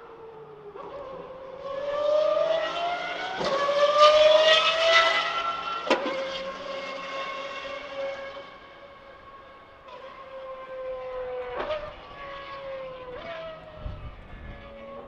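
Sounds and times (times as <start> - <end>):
distant racing car engine revving: 0.0 - 15.0.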